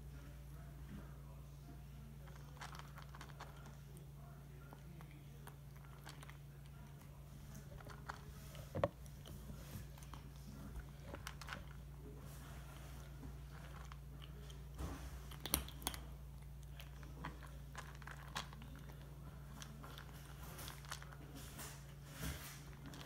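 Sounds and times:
steady low hum: 0.0s - 23.0s
kitten crunching dry kibble: 0.1s - 23.0s.

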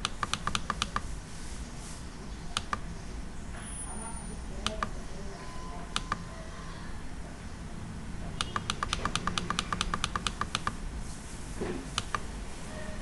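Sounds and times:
computer mouse button clicking: 0.0s - 1.0s, 2.6s - 2.8s, 4.6s - 4.9s, 5.9s - 6.2s, 8.4s - 10.8s, 12.0s - 12.2s.

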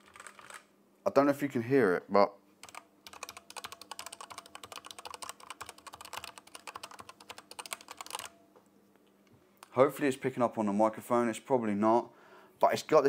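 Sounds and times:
mechanical keyboard typing: 0.0s - 0.7s, 2.6s - 8.4s.

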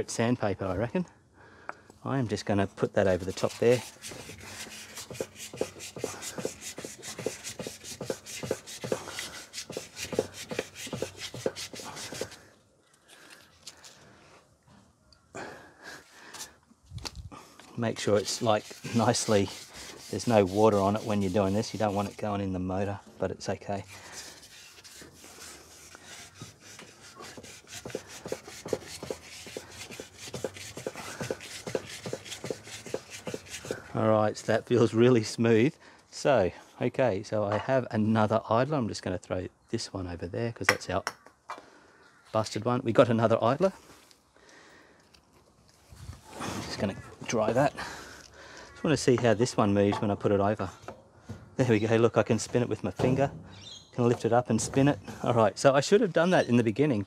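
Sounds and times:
sandpaper rubbing on metal post: 3.0s - 12.4s, 17.9s - 22.5s, 23.8s - 34.0s.

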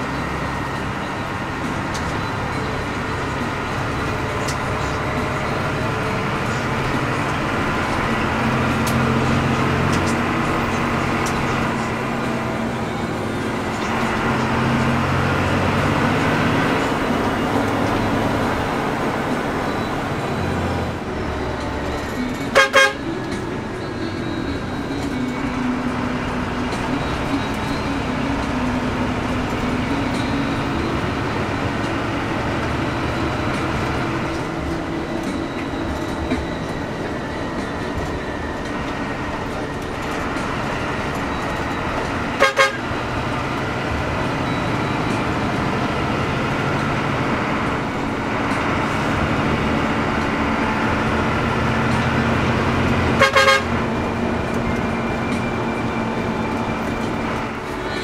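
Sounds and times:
bus diesel engine drone: 0.0s - 58.0s
road noise: 0.0s - 58.0s
vehicle horn toot: 22.5s - 23.2s, 42.3s - 43.0s, 53.0s - 53.9s.

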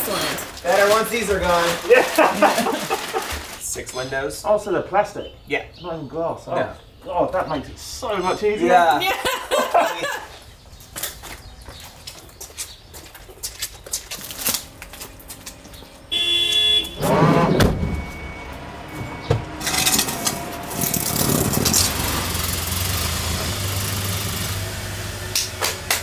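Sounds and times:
van engine pulling away: 10.4s - 26.0s
short horn toot: 16.1s - 18.2s.

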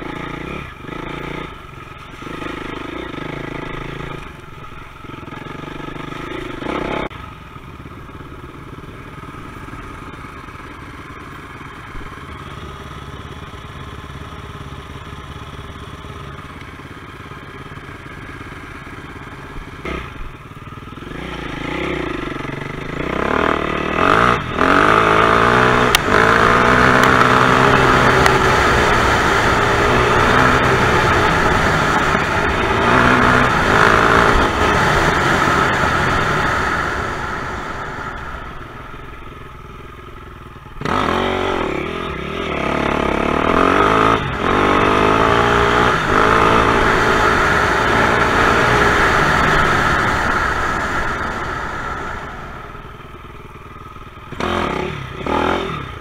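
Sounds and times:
dirt bike engine revving: 0.0s - 4.4s, 5.0s - 7.2s, 17.7s - 39.6s, 40.8s - 56.0s.

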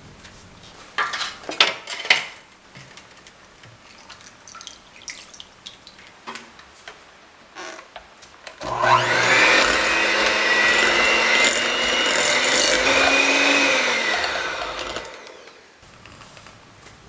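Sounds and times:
water dripping: 3.6s - 6.2s
water pouring into a bowl: 3.8s - 6.1s.

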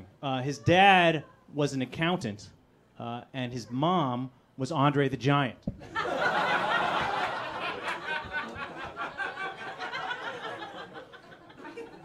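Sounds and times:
audience laughing: 5.8s - 12.0s.

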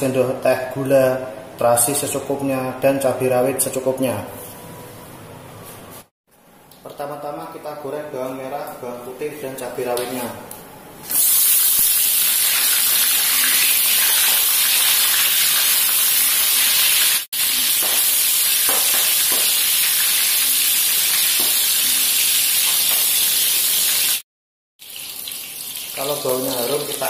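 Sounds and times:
food sizzling in hot oil: 11.0s - 24.2s, 24.8s - 27.0s.

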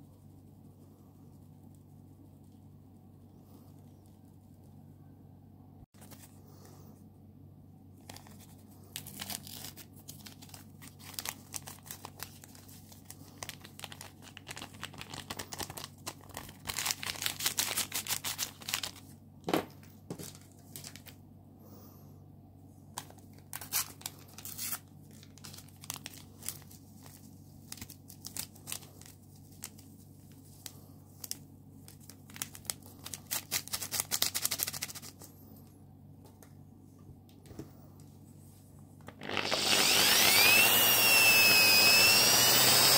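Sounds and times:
paper packets crinkling and tearing: 8.0s - 19.1s, 20.2s - 21.2s, 23.0s - 35.2s, 39.0s - 42.2s.

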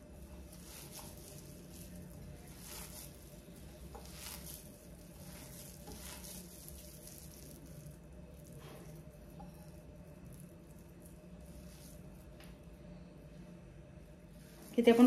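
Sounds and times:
low steady hum: 0.0s - 15.0s
hands squelching wet mixture: 0.3s - 9.1s.

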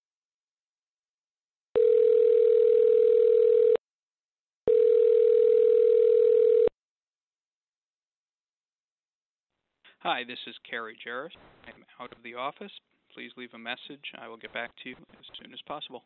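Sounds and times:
telephone ringback tone: 1.8s - 3.8s, 4.7s - 6.7s.

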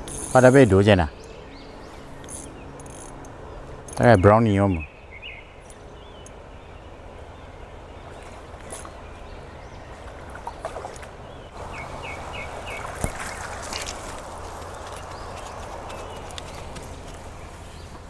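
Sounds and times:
bird chirping: 0.0s - 13.4s
creek water rushing: 7.0s - 17.8s.

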